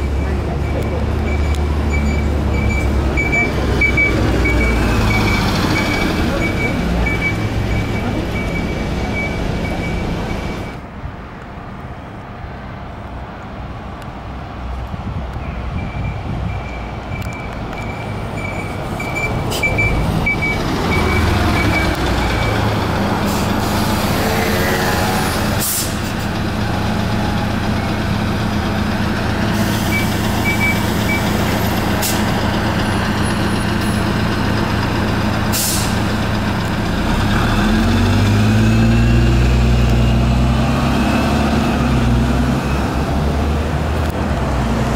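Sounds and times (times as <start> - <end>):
bus engine idling and accelerating: 0.0 - 44.9
air brake hissing: 25.6 - 26.2, 29.5 - 31.1, 32.0 - 32.4, 35.5 - 36.1.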